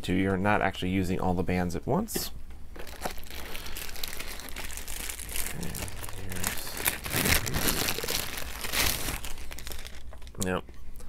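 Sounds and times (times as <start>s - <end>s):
plastic bag crinkling: 2.8s - 10.5s.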